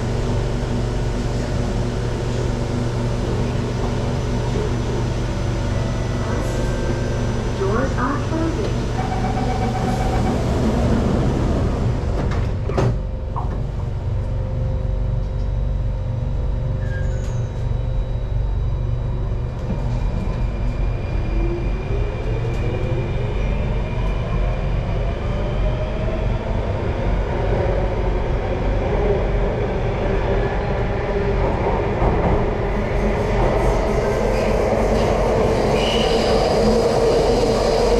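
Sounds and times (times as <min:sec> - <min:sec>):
low train carriage hum: 0:00.0 - 0:37.9
train doors sliding shut: 0:10.2 - 0:13.8.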